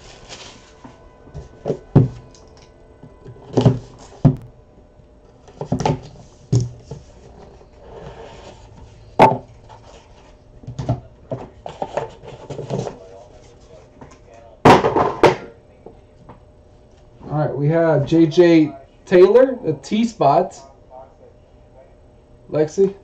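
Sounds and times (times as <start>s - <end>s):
cardboard rustling: 0.0s - 2.4s
cardboard box knocking on table: 1.6s - 2.2s.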